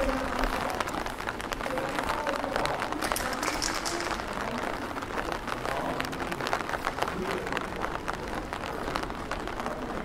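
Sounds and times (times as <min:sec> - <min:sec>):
light rain pattering: 0:00.0 - 0:10.0.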